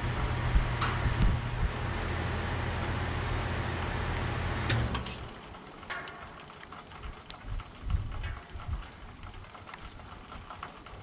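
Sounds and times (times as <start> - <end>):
heat pump shutdown click: 0.0 - 5.0
heat pump humming: 0.0 - 9.7.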